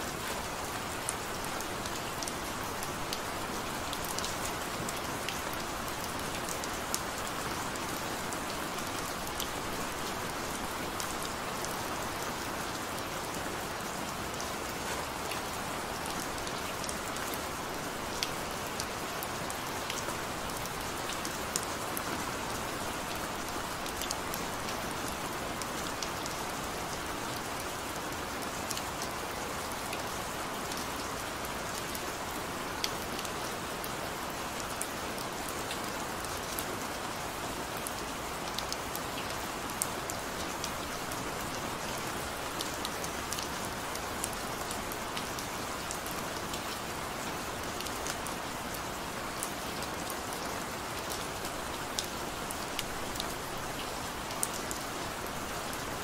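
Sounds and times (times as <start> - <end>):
steady rain hiss: 0.0 - 56.0.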